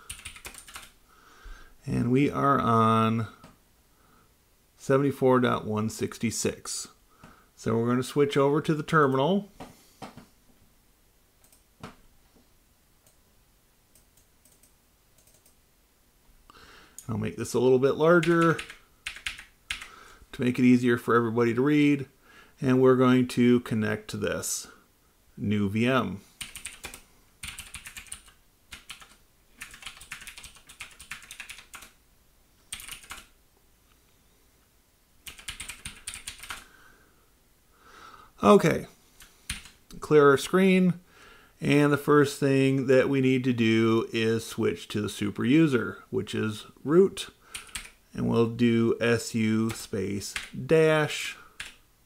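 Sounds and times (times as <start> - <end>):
computer keyboard clicks: 0.0 - 0.9, 14.0 - 15.6, 26.4 - 31.9, 32.7 - 33.3, 35.3 - 36.6, 47.5 - 48.0.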